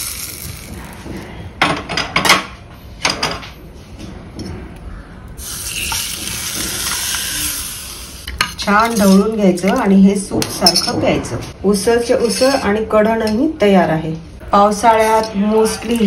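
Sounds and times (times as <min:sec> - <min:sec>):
hot oil hissing in liquid: 0:00.0 - 0:00.9.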